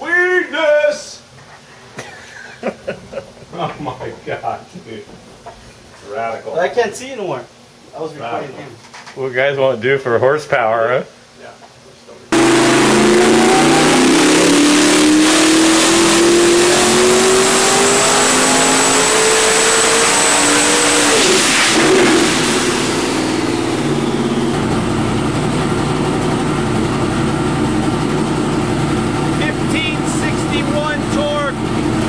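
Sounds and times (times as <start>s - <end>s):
engine revving at full throttle: 12.3s - 32.0s.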